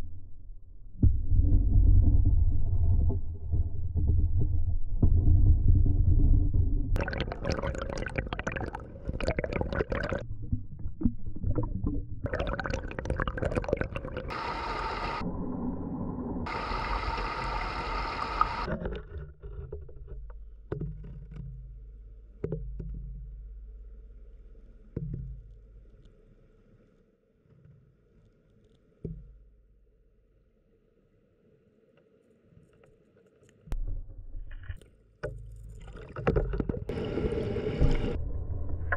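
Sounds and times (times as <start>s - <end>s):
low hum: 0.0s - 18.7s, 33.7s - 35.9s, 36.9s - 38.9s
muffled water rushing underwater: 0.0s - 19.1s, 35.5s - 38.9s.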